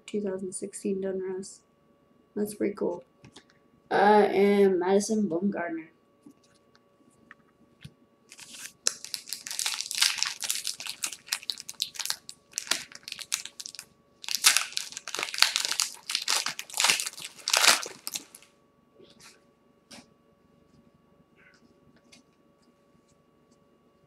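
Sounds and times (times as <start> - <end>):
plastic wrapper crinkling: 8.3 - 18.5.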